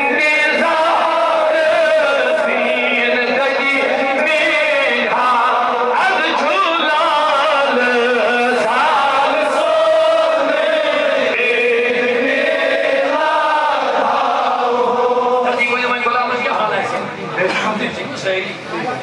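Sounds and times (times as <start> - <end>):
man chanting into microphone: 0.0 - 10.4.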